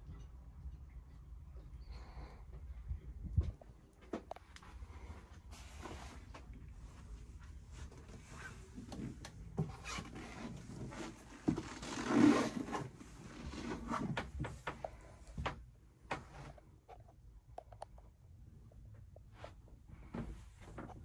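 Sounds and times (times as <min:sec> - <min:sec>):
faint low rumble: 0:00.0 - 0:11.7.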